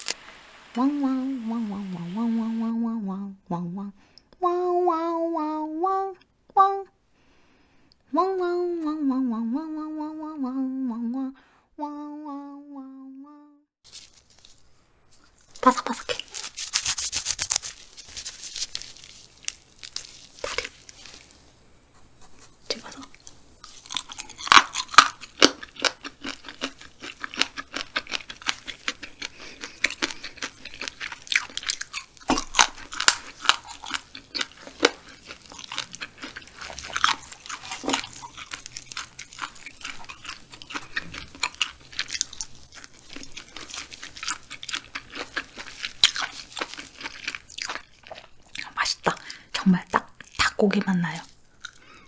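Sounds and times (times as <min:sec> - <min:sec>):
crunching and chewing: 0:13.9 - 0:21.5, 0:22.3 - 0:49.2, 0:50.0 - 0:52.0.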